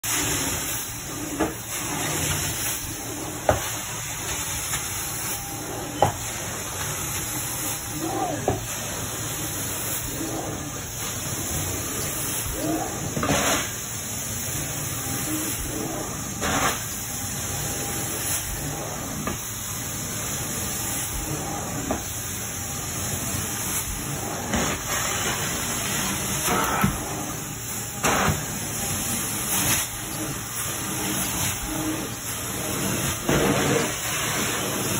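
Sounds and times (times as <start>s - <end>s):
carpet extractor hissing: 0.1s - 34.9s.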